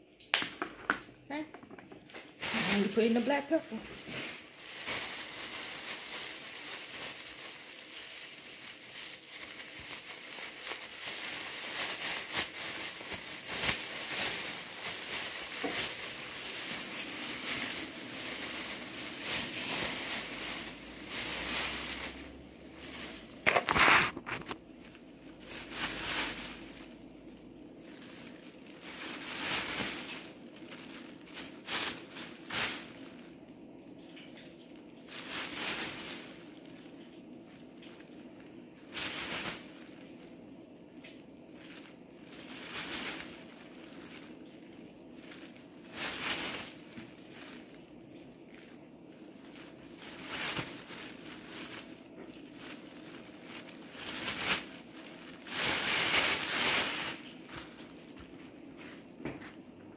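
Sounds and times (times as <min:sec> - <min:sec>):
plastic bag crinkling: 0:01.4 - 0:58.7.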